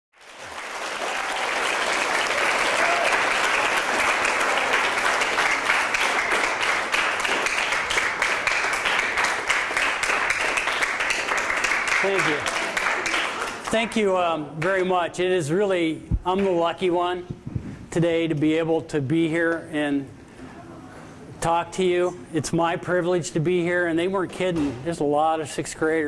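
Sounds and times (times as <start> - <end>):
audience applauding: 0.1 - 14.0.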